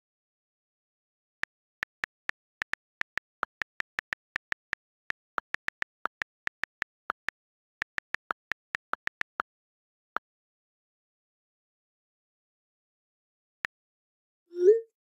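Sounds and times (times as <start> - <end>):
on-screen keyboard clicks: 1.5 - 9.4.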